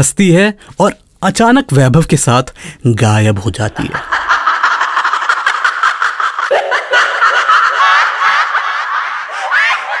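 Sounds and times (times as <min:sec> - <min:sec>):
woman cackling laugh: 0:04.0 - 0:10.0.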